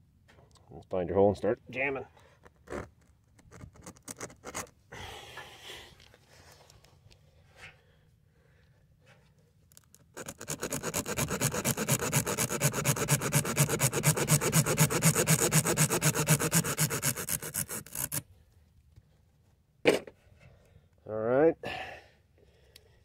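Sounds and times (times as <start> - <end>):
rhythmic rubbing rasp: 10.2 - 18.2.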